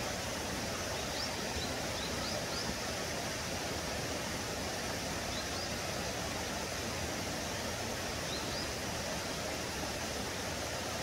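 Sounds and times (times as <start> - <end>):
stream water rushing: 0.0 - 11.0.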